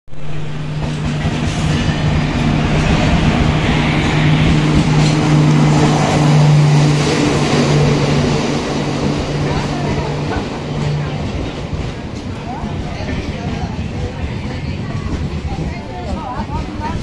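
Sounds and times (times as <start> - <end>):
train wheels on rails: 0.2 - 17.0.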